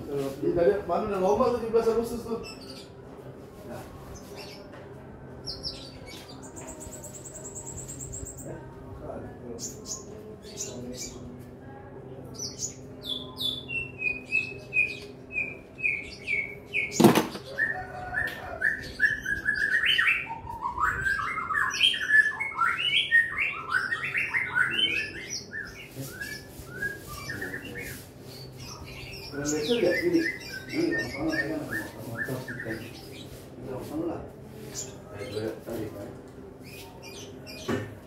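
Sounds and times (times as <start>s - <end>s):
songbird chirping and warbling: 0.0s - 38.0s
sharp knock: 17.0s - 17.4s.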